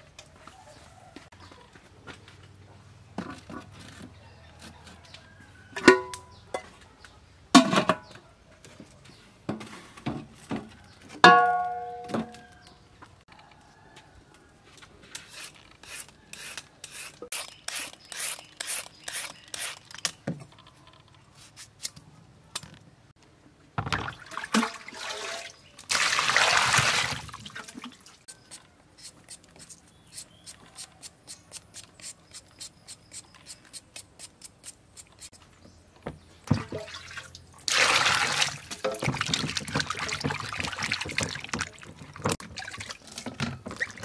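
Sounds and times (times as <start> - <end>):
kitchenware knocking: 11.2 - 12.3
water splashing in bowl: 23.9 - 28.2, 36.5 - 44.0.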